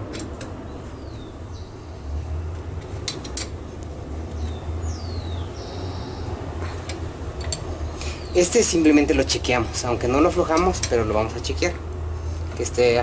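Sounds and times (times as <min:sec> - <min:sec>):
bird chirping: 0:00.6 - 0:02.1, 0:04.3 - 0:06.8, 0:07.7 - 0:11.5
wrench clicking: 0:06.8 - 0:07.7.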